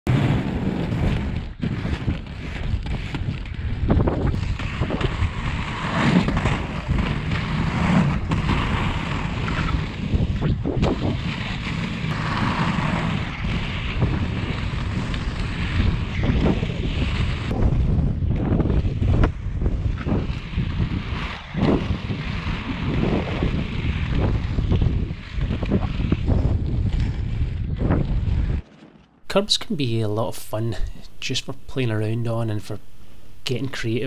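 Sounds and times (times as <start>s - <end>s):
wind buffeting microphone: 0.1s - 11.6s, 13.2s - 28.6s
skate wheels rolling on asphalt: 0.1s - 29.2s.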